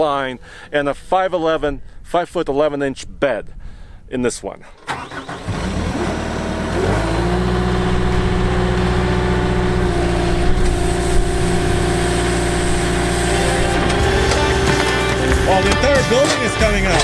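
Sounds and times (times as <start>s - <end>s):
diesel engine revving: 4.8s - 16.4s.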